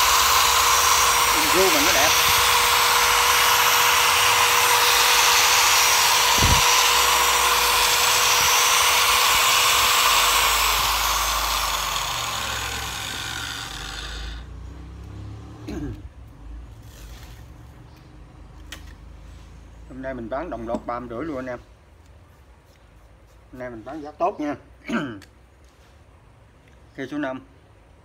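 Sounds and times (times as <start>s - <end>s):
grinder winding down: 0.0s - 14.6s
angle grinder whining: 0.0s - 15.1s.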